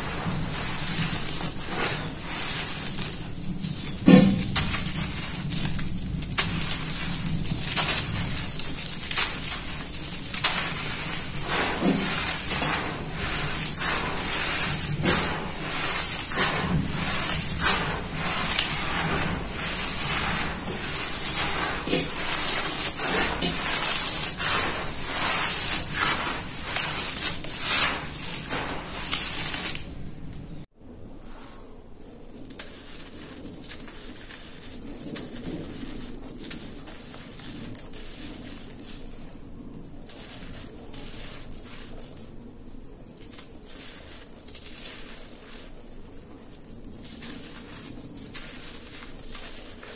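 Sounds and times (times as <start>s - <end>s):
dirt chunks scraping and crumbling: 0.0s - 30.7s, 32.0s - 49.9s.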